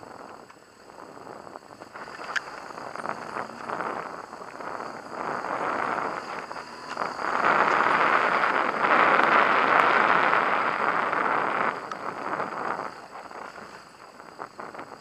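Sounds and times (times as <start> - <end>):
motorcycle engine and riding noise: 0.0 - 15.0.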